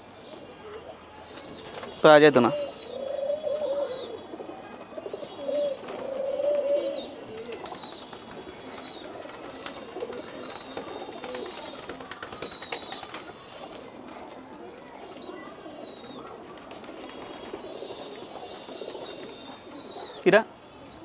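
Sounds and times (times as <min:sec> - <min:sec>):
pigeons cooing: 0:00.0 - 0:21.0
beaks tapping on concrete: 0:07.4 - 0:13.5.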